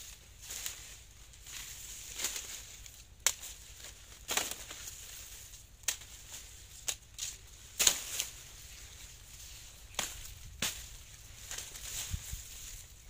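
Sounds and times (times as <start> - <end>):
dry leaves rustling and crackling: 0.0 - 13.0
stalks cracking: 1.5 - 5.2, 5.8 - 8.4, 9.9 - 12.2.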